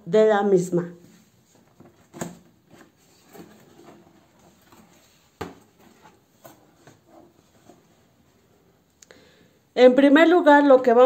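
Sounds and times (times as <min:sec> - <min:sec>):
box rubbing and rustling: 0:01.6 - 0:08.7.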